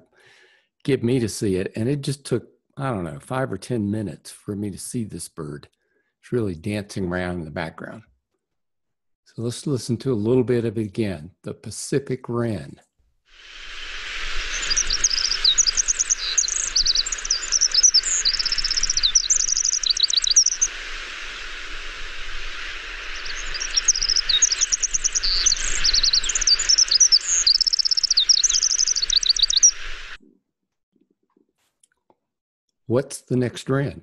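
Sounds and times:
background hiss: 13.3s - 30.2s
wren singing rapid trills: 13.8s - 20.7s, 22.6s - 30.1s.

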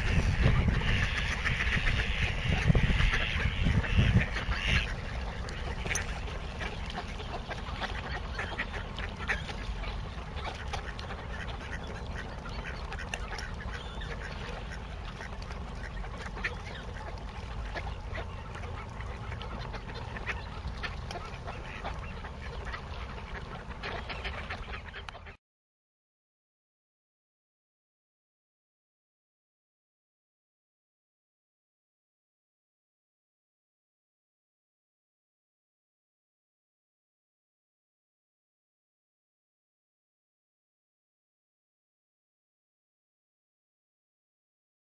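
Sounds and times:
ducks quacking: 0.0s - 25.4s
waterfowl calls: 0.0s - 25.4s.

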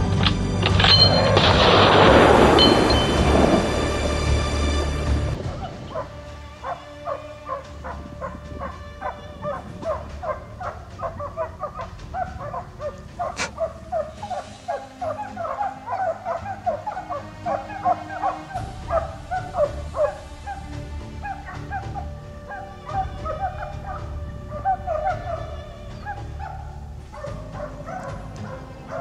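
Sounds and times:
low rumble: 0.0s - 6.6s
hounds barking: 5.4s - 29.0s.

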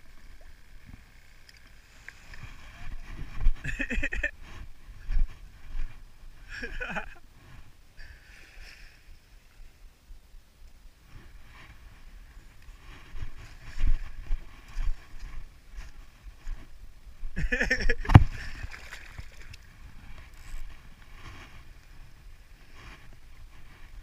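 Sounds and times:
wind buffeting microphone: 2.3s - 6.3s.

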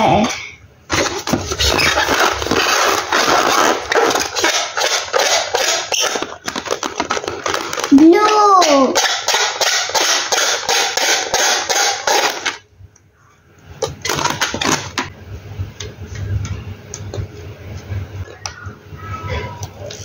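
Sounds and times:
rubbery balloon squeaks: 0.9s - 8.0s.

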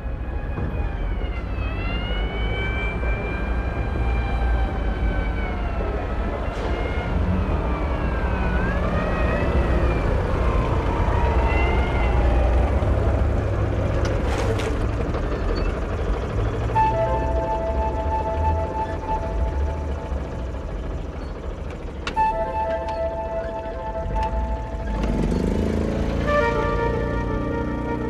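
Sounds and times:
motor scooter engine running: 24.3s - 26.4s.

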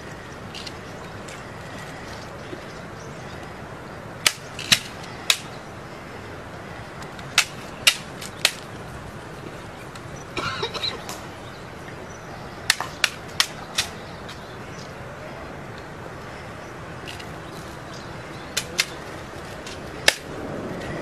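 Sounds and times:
hands slapping rifle: 7.4s - 8.6s, 18.6s - 19.0s, 19.7s - 20.3s.

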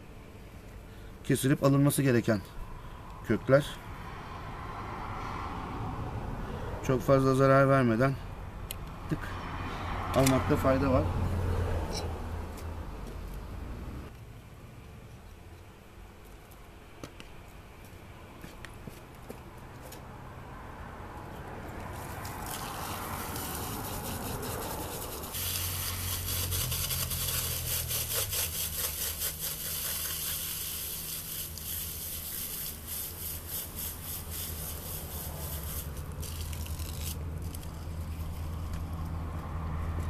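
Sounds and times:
hose spraying water: 21.9s - 37.7s.

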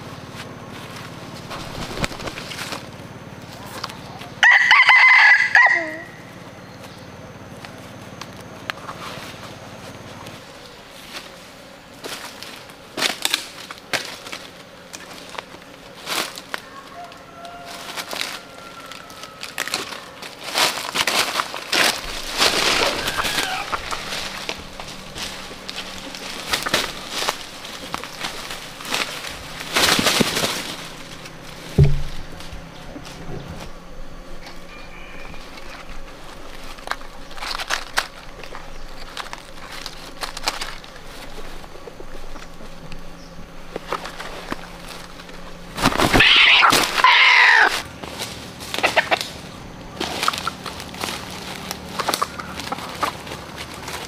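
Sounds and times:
rustling in ferns: 0.0s - 4.4s, 5.7s - 54.0s
footsteps crunching on dry leaves: 0.0s - 6.1s, 6.8s - 54.0s
twigs snapping: 1.4s - 2.9s, 12.0s - 34.7s, 35.4s - 54.0s
chicken calling: 4.1s - 6.4s, 16.6s - 20.4s, 22.0s - 37.4s, 44.5s - 48.0s, 48.7s - 50.7s
loud sudden thump: 31.8s - 32.3s.

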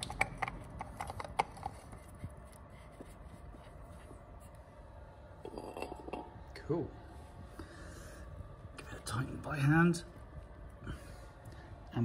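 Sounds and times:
oil filter clicking and knocking: 0.0s - 2.1s.

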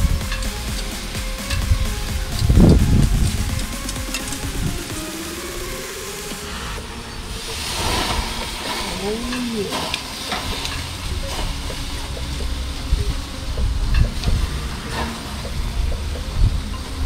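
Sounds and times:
meat sizzling on a grill: 7.3s - 12.9s.

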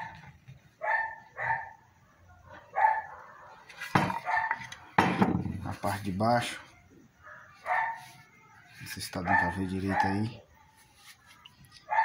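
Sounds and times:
dog barking: 0.8s - 4.7s, 7.2s - 8.2s, 9.2s - 10.5s.

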